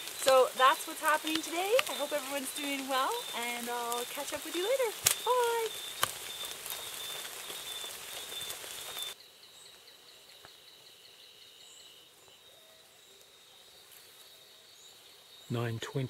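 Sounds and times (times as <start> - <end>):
pouring rain hissing: 0.0 - 9.2, 12.8 - 16.0
faint forest background: 0.0 - 16.0.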